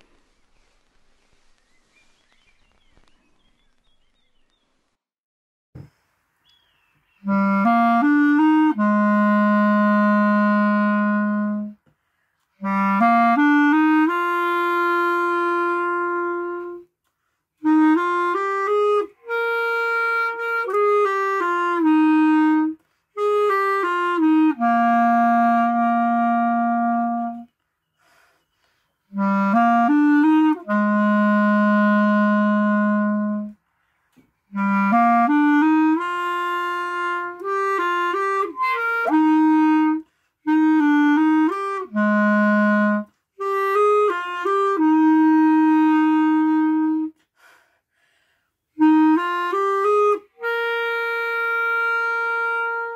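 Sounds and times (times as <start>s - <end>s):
solo clarinet melody: 7.2s - 11.8s, 12.6s - 16.9s, 17.6s - 27.5s, 29.1s - 33.6s, 34.5s - 47.2s, 48.8s - 52.9s.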